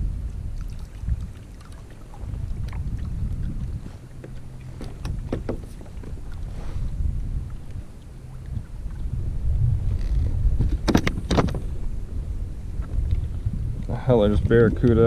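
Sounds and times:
wind rumbling on microphone: 0:00.0 - 0:15.0
sharp clicks and knocks: 0:10.0 - 0:11.6.

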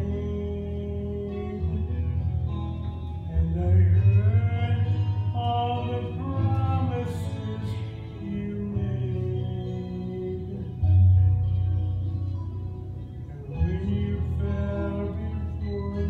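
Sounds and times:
man singing: 0:00.0 - 0:11.5, 0:13.1 - 0:16.0
instrumental backing: 0:00.0 - 0:16.0.

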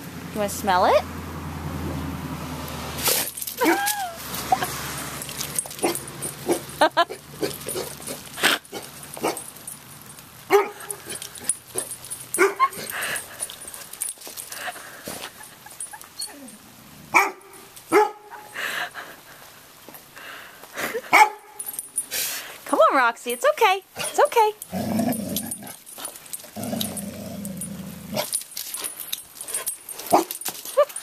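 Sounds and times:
dog barking: 0:10.5 - 0:11.2, 0:12.4 - 0:12.9, 0:17.1 - 0:18.5, 0:21.1 - 0:21.6.

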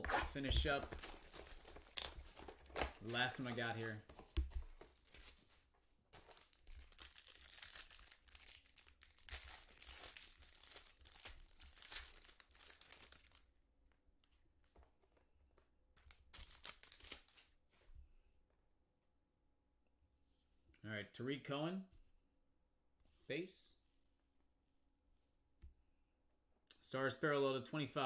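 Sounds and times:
card pack wrapper tearing and crinkling: 0:00.0 - 0:05.4, 0:06.2 - 0:13.4, 0:16.2 - 0:17.5.

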